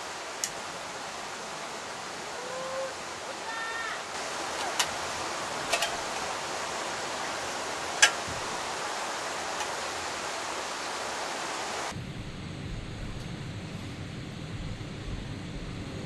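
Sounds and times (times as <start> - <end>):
mountain stream rushing: 0.0 - 12.0
low rumble: 11.9 - 16.0.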